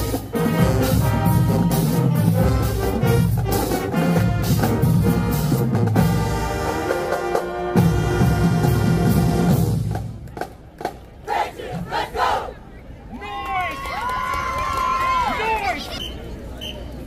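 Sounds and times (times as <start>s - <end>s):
marching band playing: 0.0s - 12.5s
crowd shouting: 11.2s - 16.0s.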